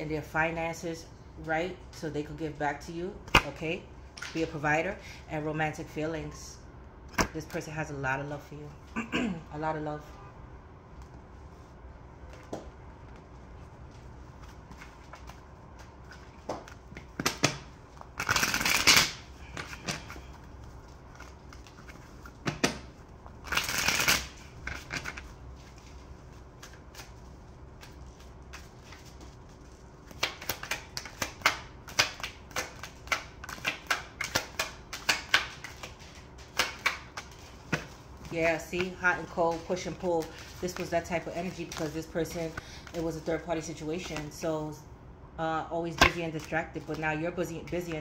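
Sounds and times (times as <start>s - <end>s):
cards being shuffled: 13.9s - 43.3s.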